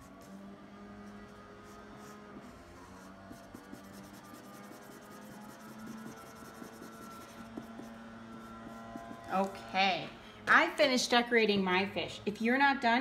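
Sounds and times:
marker scribbling on paper: 0:01.2 - 0:09.6.

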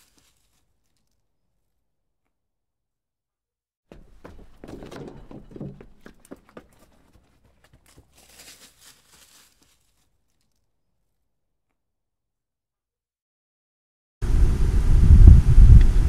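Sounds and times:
footsteps on dirt trail: 0:00.0 - 0:01.2, 0:03.9 - 0:10.6
wind rumble on microphone: 0:14.2 - 0:16.0.

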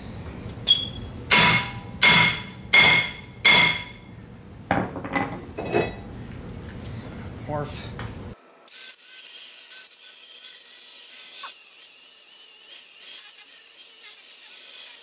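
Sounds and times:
hammer striking metal: 0:00.7 - 0:04.1.

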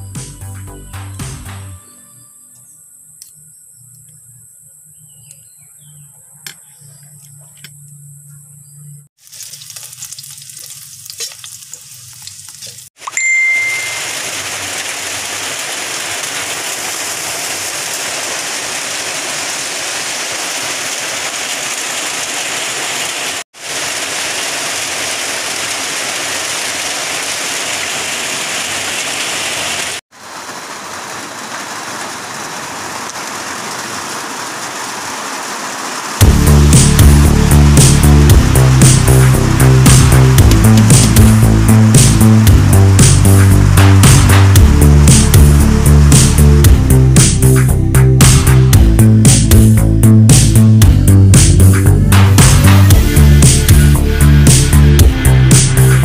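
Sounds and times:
pot boiling hiss: 0:09.2 - 0:47.4
short ding: 0:13.0 - 0:14.0.

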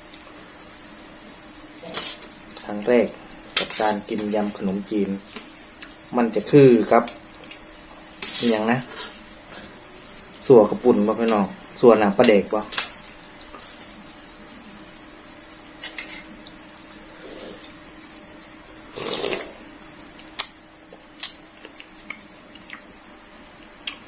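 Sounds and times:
crickets chirping: 0:00.0 - 0:24.0
slurp from spoon: 0:18.9 - 0:19.5.

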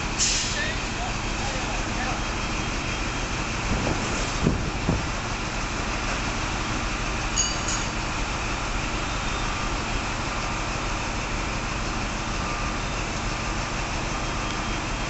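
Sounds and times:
diesel train engine rumble: 0:00.0 - 0:15.0
low knocks: 0:03.7 - 0:05.2.

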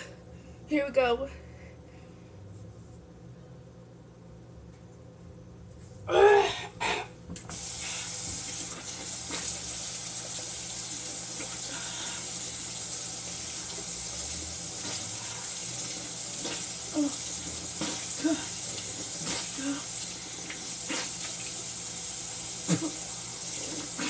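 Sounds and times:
kitchen tap running: 0:07.4 - 0:24.0
person coughing: 0:22.6 - 0:23.1.

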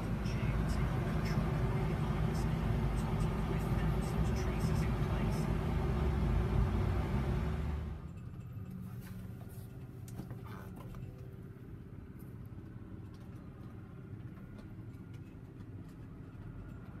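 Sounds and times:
tractor diesel engine idling: 0:00.0 - 0:08.2.

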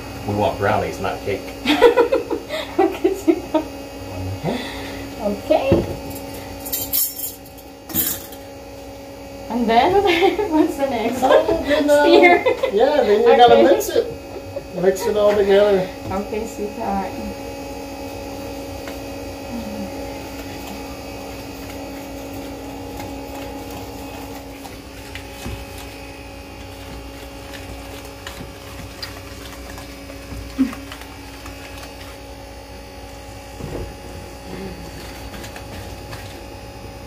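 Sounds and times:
electrical hum: 0:00.0 - 0:37.0
whisk stirring in metal bowl: 0:20.3 - 0:32.5
whisk knocking bowl: 0:20.4 - 0:32.3.

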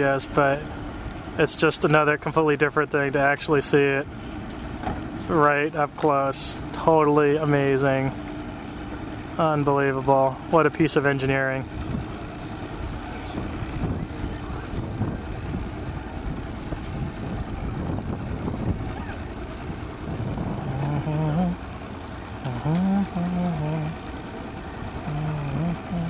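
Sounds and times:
boat motors rumbling: 0:00.0 - 0:26.0
indistinct voices talking: 0:05.3 - 0:26.0
wind on microphone: 0:13.3 - 0:21.2.

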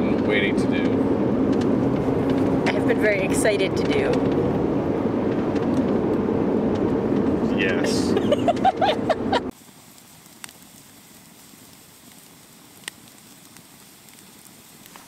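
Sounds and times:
road noise inside car: 0:00.0 - 0:09.5
campfire burning: 0:00.0 - 0:15.0
sharp crackling pops: 0:00.2 - 0:07.3, 0:09.5 - 0:15.0.

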